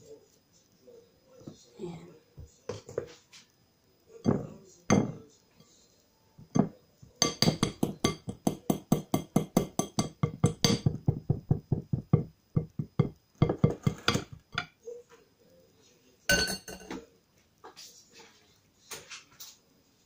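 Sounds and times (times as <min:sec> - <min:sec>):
sieve tapping glass bowl: 0:04.2 - 0:05.2, 0:06.4 - 0:14.7, 0:16.3 - 0:17.0.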